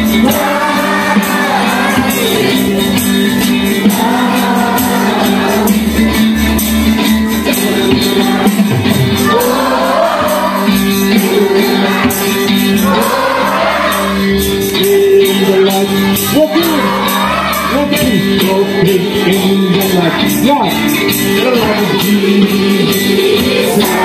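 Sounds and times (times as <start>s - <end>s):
congregation singing: 0.0s - 24.0s
instruments and percussion beat: 0.0s - 24.0s
people shouting: 9.2s - 14.6s, 15.5s - 20.7s.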